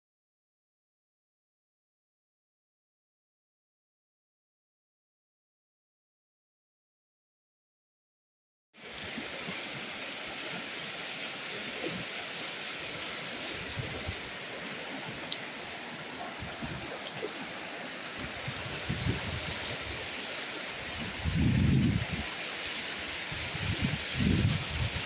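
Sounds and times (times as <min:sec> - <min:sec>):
river rushing over stones: 0:08.8 - 0:25.0.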